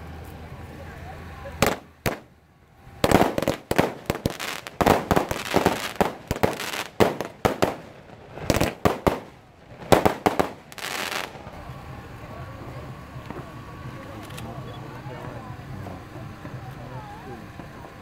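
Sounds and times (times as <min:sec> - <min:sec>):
firecrackers cracking: 0:01.6 - 0:18.0.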